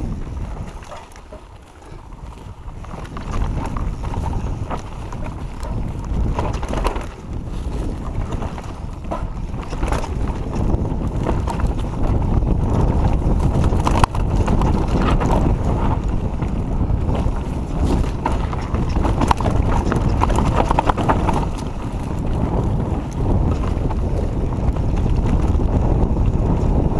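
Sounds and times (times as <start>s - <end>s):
bike rattling over bumps: 0.0s - 26.9s
wind buffeting microphone: 0.0s - 26.9s.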